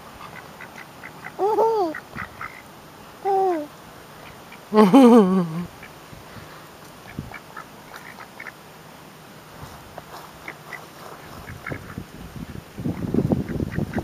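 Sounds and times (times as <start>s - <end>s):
ducks quacking: 0.2s - 2.7s, 7.0s - 8.6s, 10.3s - 12.0s.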